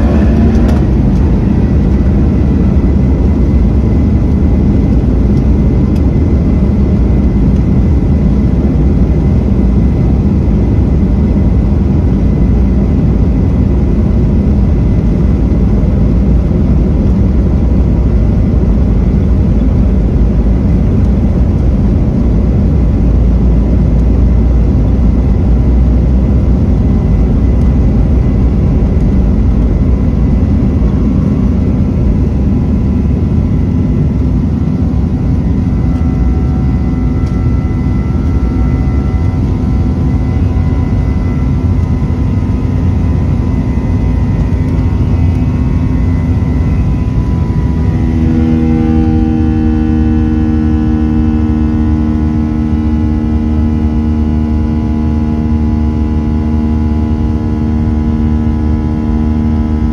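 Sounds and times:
engine whining tones: 0.0 - 6.5, 19.4 - 59.9
jet engine roar: 0.0 - 59.9.

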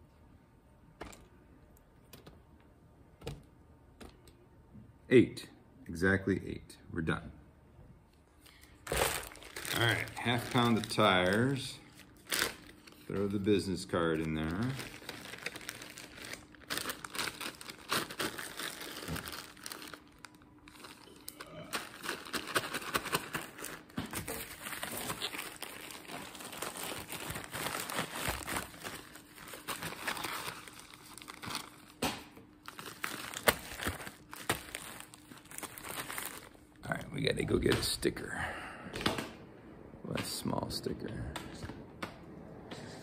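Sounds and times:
plastic bag crinkling: 8.4 - 32.0, 32.6 - 37.3.

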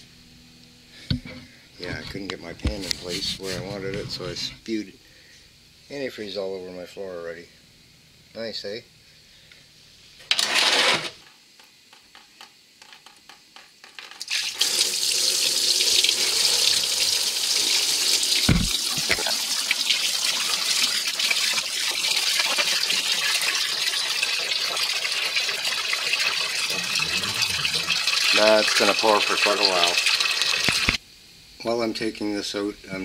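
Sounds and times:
liquid pouring into drain pan: 14.2 - 31.0.

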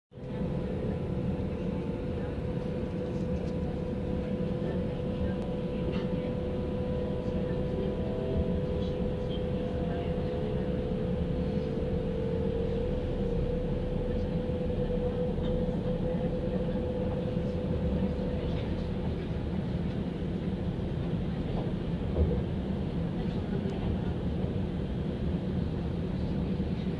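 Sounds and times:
train running gear rumble: 0.2 - 26.9
traction drive whine: 5.4 - 19.4.

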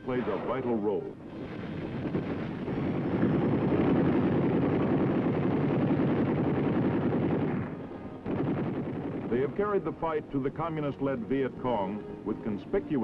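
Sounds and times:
helicopter engine noise: 1.2 - 10.0
helicopter rotor beat: 1.2 - 12.9.

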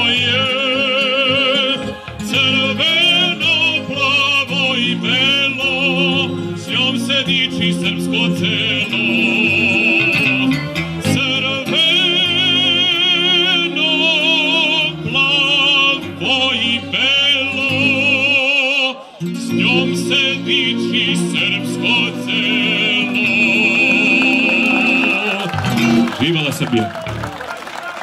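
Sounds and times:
electronic keyboard chords: 0.0 - 18.3, 19.2 - 27.3
man singing operatically: 0.0 - 26.7
accordion chords: 0.0 - 28.0.

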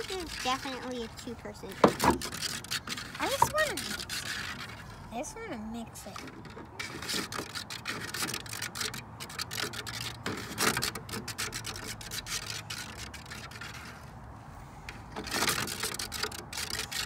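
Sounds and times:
plastic tray clicking and rubbing: 1.7 - 4.8, 6.2 - 14.0, 15.2 - 17.0.

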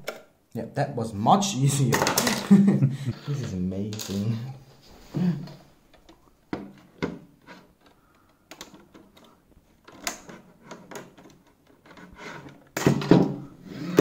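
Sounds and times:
sharp plastic clicks and knocks: 5.9 - 12.0.

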